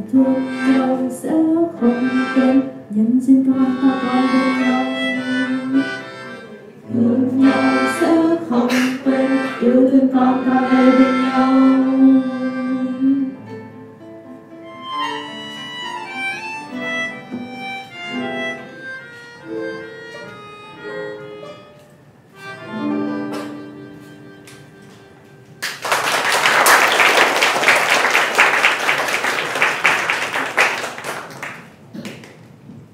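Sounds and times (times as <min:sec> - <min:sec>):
melodica: 0:00.0 - 0:01.1, 0:01.8 - 0:02.8, 0:03.5 - 0:13.4, 0:14.6 - 0:25.6
acoustic guitar: 0:00.0 - 0:25.6
audience applause: 0:25.6 - 0:32.4.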